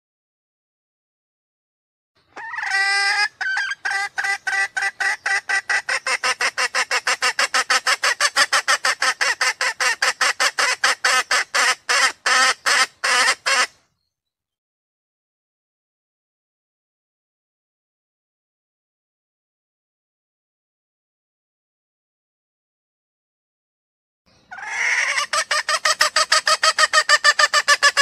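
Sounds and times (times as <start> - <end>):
hen calling: 2.2 - 13.8, 24.4 - 28.0
hen clucking: 2.3 - 13.8, 24.5 - 28.0.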